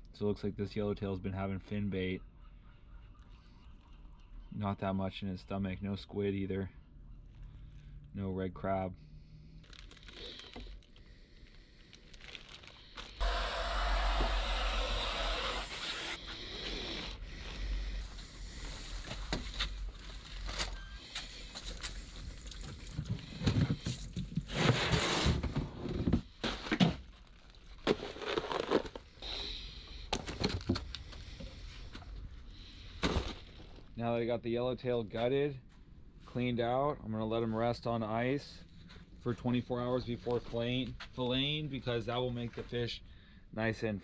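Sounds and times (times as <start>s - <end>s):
plastic bag crinkling: 9.5s - 13.2s, 27.0s - 29.1s.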